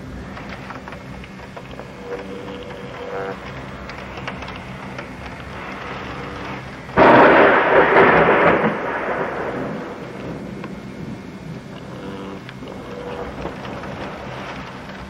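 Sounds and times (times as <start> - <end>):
rainy thunderstorm: 0.0 - 15.0
thunderclap: 5.5 - 11.7.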